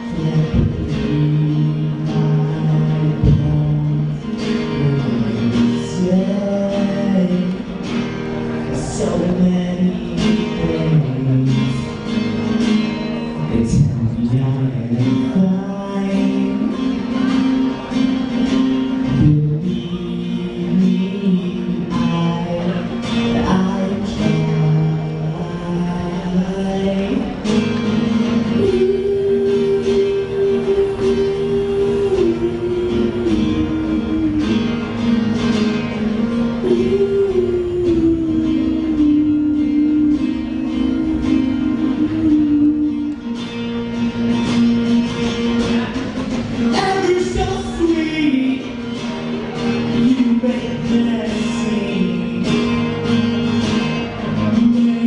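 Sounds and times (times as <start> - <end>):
acoustic guitar strumming: 0.0 - 55.0
man singing: 0.0 - 55.0.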